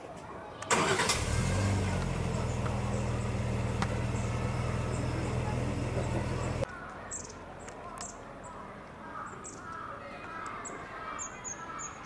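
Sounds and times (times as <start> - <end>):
engine starting and running: 0.7 - 6.6.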